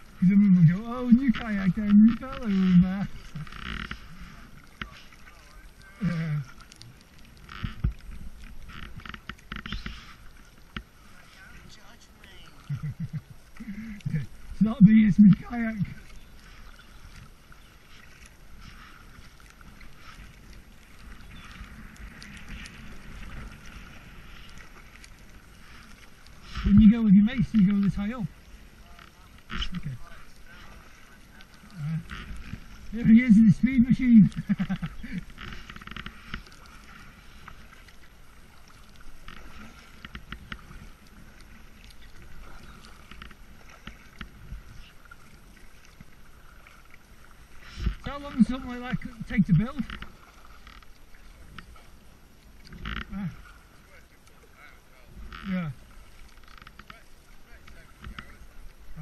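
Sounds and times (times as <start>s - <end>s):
paddle splashing in water: 0.0s - 59.0s
small ticks: 5.8s - 10.9s.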